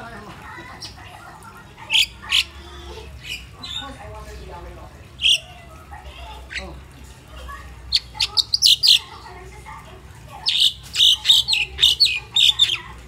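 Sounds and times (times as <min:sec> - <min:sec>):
bird chirping: 0:01.9 - 0:02.6, 0:03.2 - 0:04.0, 0:05.2 - 0:05.5, 0:07.9 - 0:09.2, 0:10.4 - 0:12.9.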